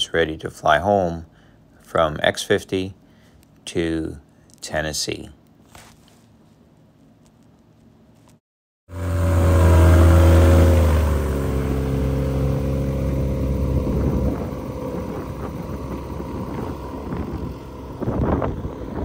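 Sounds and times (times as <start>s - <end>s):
aircraft engine and propeller: 8.9s - 19.0s.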